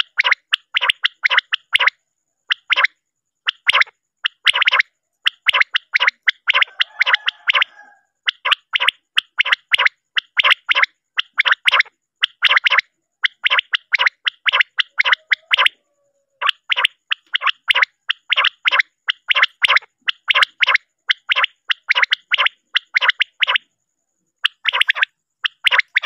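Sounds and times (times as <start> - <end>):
quail calling: 0.0 - 23.7, 24.4 - 26.0.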